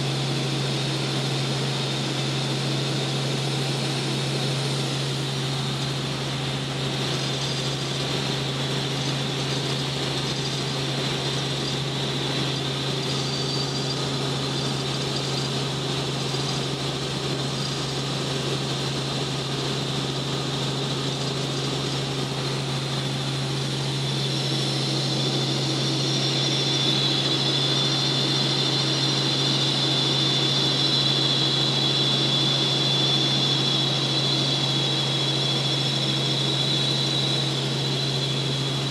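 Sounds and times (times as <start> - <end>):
helicopter engine and rotors drone: 0.0 - 38.9
high whine: 4.2 - 20.5.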